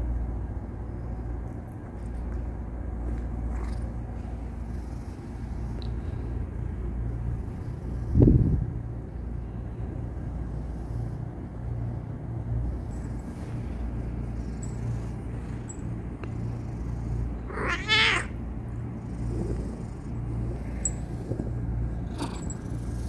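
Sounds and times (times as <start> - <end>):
low steady rumble: 0.0 - 23.0
cat meowing: 17.5 - 18.4.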